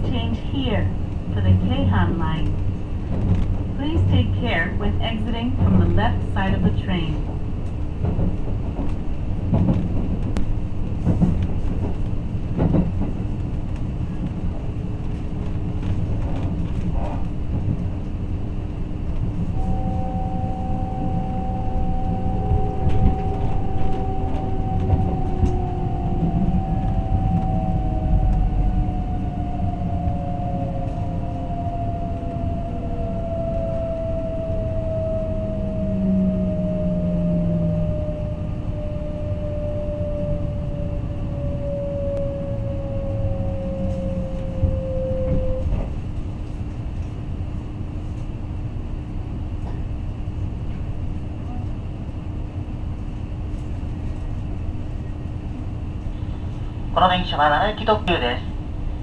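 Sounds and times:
train interior rumble: 0.0s - 59.0s
traction motor whine: 18.0s - 47.2s.

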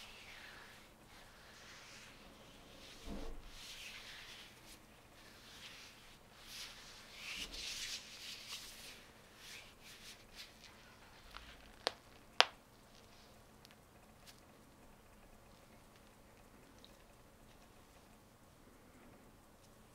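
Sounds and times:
gloves rubbing and rustling: 0.0s - 18.8s
glove material snapping: 11.2s - 12.6s.

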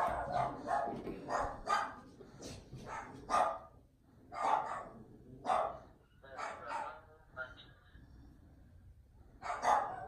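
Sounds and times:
dog barking: 0.0s - 2.0s, 2.8s - 7.1s, 9.4s - 10.0s.

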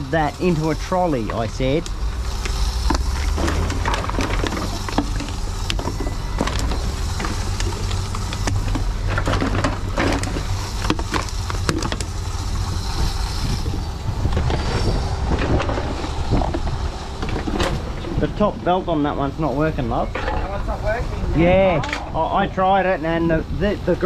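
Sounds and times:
steady low rumble: 0.0s - 24.0s
bottles and cans clattering: 2.9s - 12.1s.

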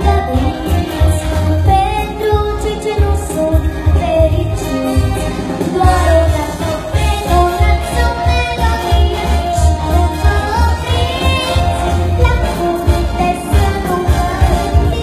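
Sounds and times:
pop backing track with bass beat: 0.0s - 15.0s
girl singing into microphone: 1.6s - 15.0s.

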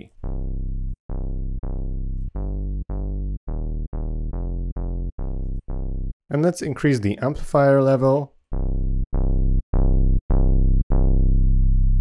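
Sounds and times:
synth bass notes: 0.0s - 6.5s, 8.4s - 12.0s.

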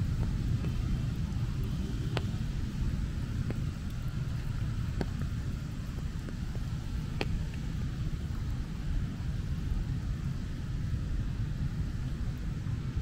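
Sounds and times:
rain pattering on umbrella: 0.0s - 9.0s
steady low rumble: 0.0s - 13.0s.

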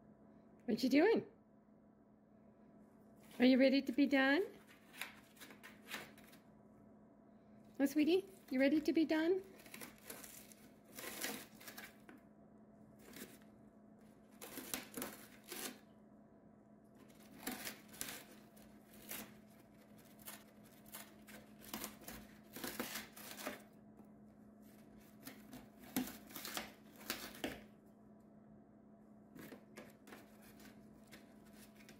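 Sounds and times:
bird tearing cardboard: 4.6s - 6.4s, 9.4s - 12.2s, 13.0s - 15.9s, 17.0s - 23.7s, 24.7s - 27.7s, 29.3s - 31.9s.

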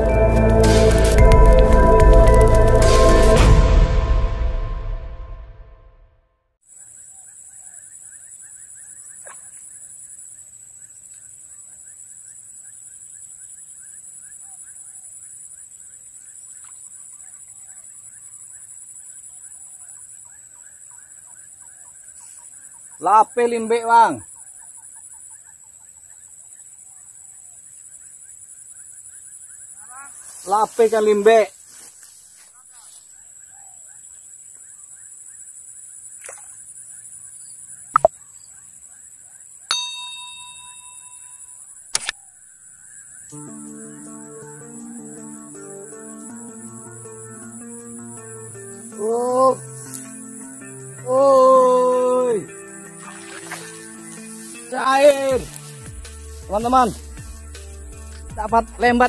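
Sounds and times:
bell chime: 0.0s - 3.9s, 39.7s - 41.5s
faint outdoor background: 0.0s - 59.0s
quick clicks: 41.9s - 42.2s
high-pitched insect drone: 42.8s - 59.0s.

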